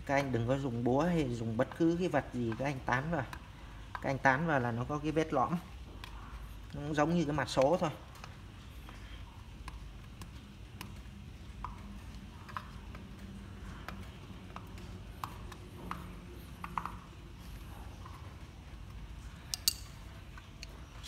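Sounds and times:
low steady hum: 0.0 - 21.0
faint metal taps and clicks: 9.6 - 21.0.

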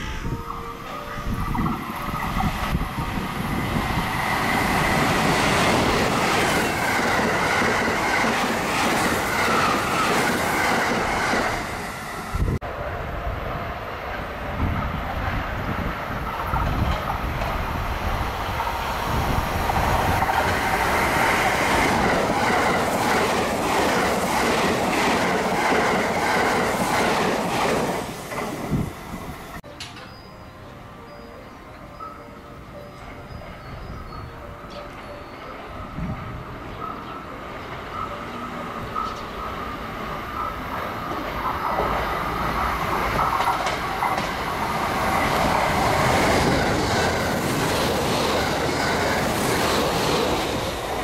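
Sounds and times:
electric train passing at speed: 0.0 - 51.0
train wheels clacking on rail joints: 16.2 - 17.7, 40.4 - 51.0.

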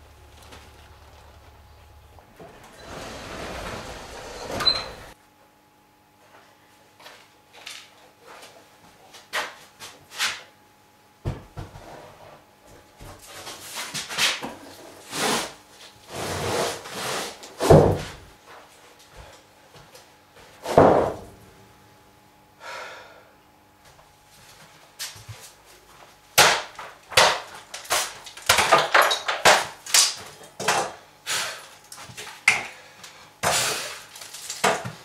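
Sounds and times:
wood scraping and knocking on wood: 0.3 - 5.2
heavy thuds of boards: 17.6 - 18.2, 20.6 - 21.3.

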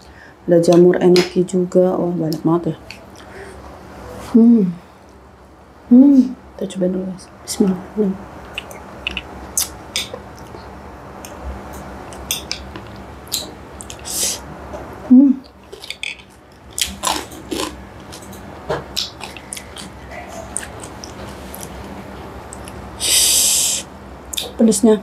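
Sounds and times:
closed-mouth hum: 0.0 - 24.6
sucking hiss: 13.9 - 14.5, 23.0 - 23.9
wet chewing and lip smacks: 15.4 - 21.8, 22.5 - 22.8.

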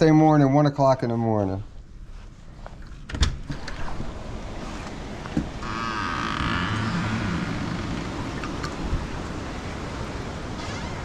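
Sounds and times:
wind and rain rushing: 3.4 - 11.0.

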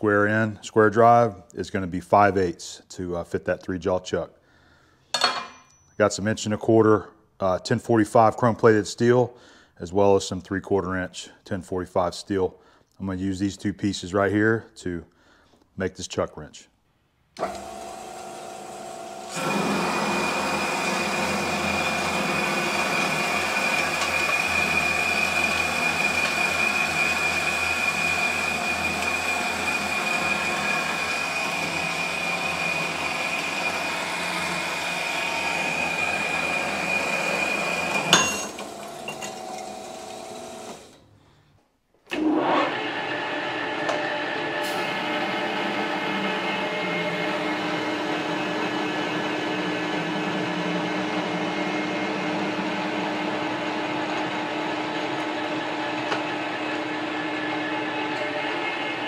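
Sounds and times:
sharp metal clank: 5.2 - 6.0, 38.1 - 38.6
metal lathe running: 17.4 - 40.9
bandsaw cutting steel whining: 19.1 - 41.0.

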